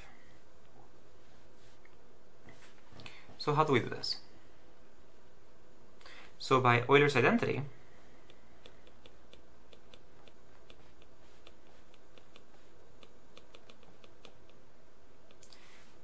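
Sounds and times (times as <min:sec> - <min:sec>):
stylus tapping on tablet screen: 0:08.2 - 0:14.6.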